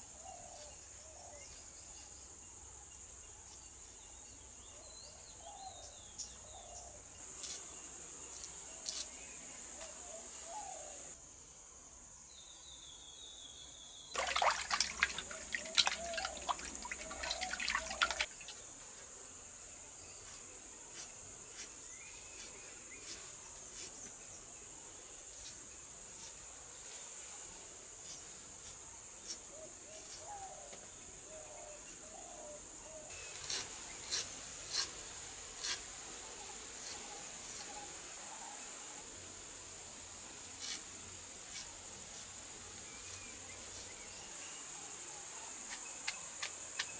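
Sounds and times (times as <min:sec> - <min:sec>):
crickets chirring: 0:00.1 - 0:46.9
knife slicing ginger: 0:33.3 - 0:35.0, 0:35.6 - 0:35.8.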